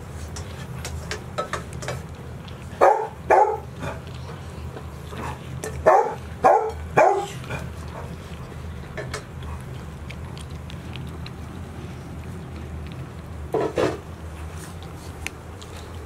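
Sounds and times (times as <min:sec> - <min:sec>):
dog barking: 0:02.8 - 0:04.0, 0:05.8 - 0:07.4.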